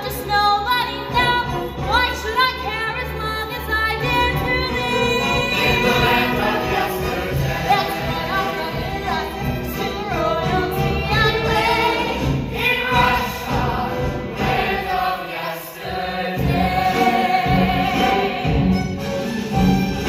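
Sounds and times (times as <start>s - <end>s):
instrumental accompaniment: 0.2s - 20.0s
large chorus singing: 4.0s - 20.0s.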